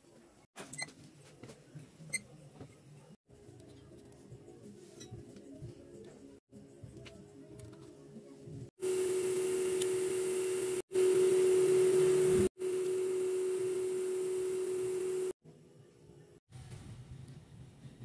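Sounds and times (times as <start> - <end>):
machine hum with hiss: 8.8 - 15.4.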